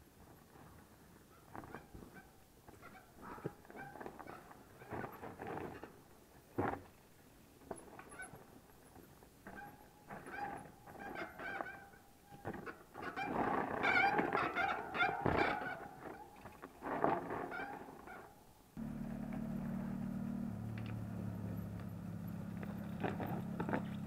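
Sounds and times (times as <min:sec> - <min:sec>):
bike knocking over roots and rocks: 0:22.5 - 0:24.0.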